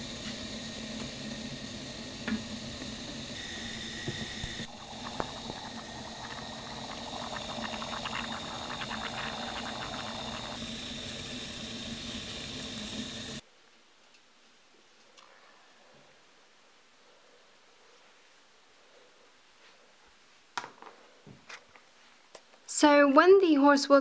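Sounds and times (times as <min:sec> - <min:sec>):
water boiling in a saucepan: 0:00.0 - 0:13.4.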